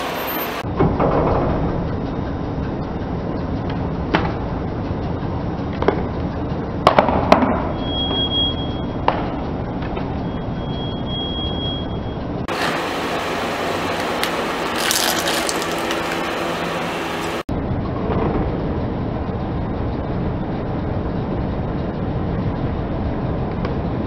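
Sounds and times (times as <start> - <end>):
plastic cracking under car tyre: 13.8 - 17.4
plastic crackling: 13.8 - 17.4.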